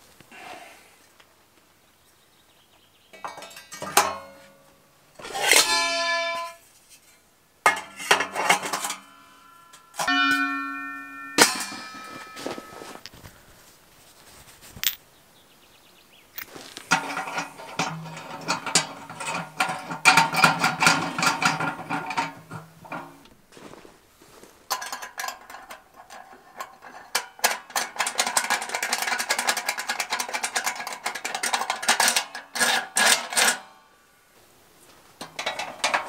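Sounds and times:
steel parts clinking and knocking: 0:03.2 - 0:04.5, 0:05.2 - 0:13.2, 0:14.8 - 0:15.0, 0:16.4 - 0:23.3, 0:24.7 - 0:33.8, 0:35.2 - 0:36.0.

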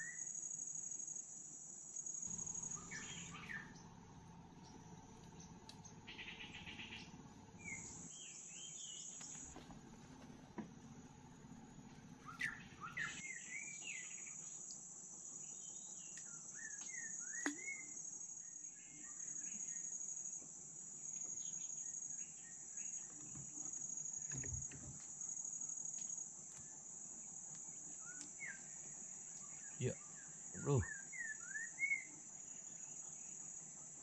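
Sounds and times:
insects buzzing: 0:00.0 - 0:34.0
birds chirping: 0:02.3 - 0:09.8, 0:12.1 - 0:14.5, 0:27.7 - 0:33.0.

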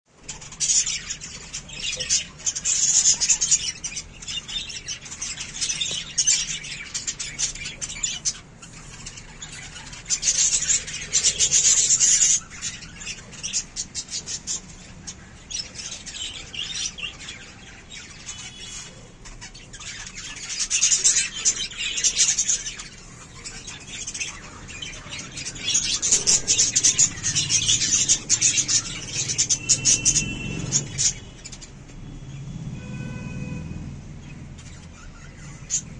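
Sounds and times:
flock of budgerigars chirping: 0:00.2 - 0:35.9.

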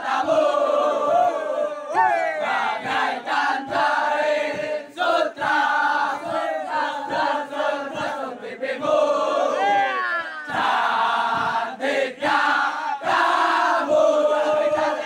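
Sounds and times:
men chanting in unison: 0:00.0 - 0:15.0.

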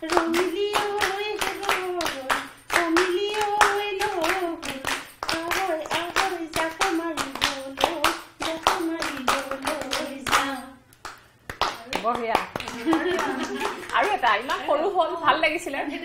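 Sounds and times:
woman singing: 0:00.0 - 0:10.8
women clapping in time: 0:00.1 - 0:14.4.

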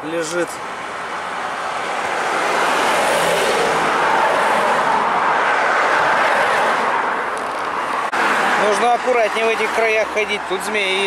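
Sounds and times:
vehicle tyre and road noise: 0:00.0 - 0:11.0.

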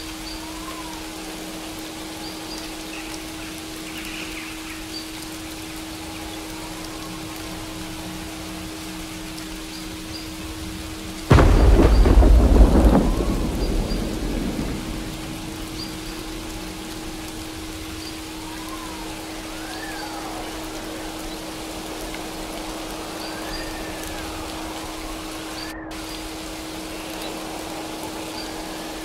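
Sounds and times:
steady rain: 0:00.0 - 0:29.0
thunderclap rumbling: 0:11.3 - 0:18.9.

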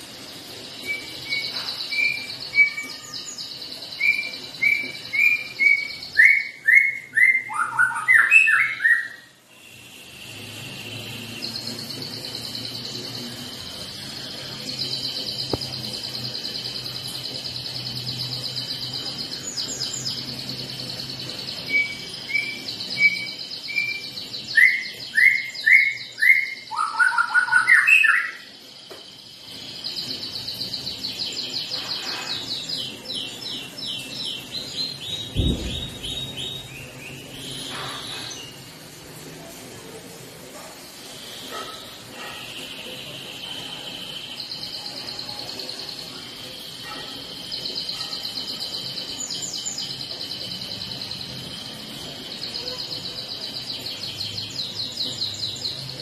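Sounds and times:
bird singing high trills: 0:00.0 - 0:38.7
loud whistled bird notes: 0:00.8 - 0:16.8, 0:21.6 - 0:28.5, 0:34.8 - 0:38.6.

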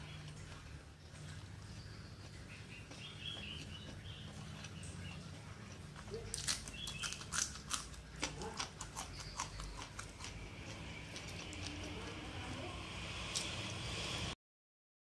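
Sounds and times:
wet chewing and lip smacks: 0:00.0 - 0:11.9
low steady hum: 0:00.0 - 0:14.4.

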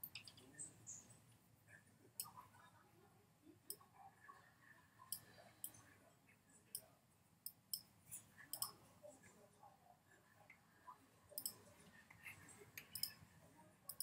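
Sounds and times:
mouse clicks: 0:08.5 - 0:08.8, 0:11.4 - 0:11.6.

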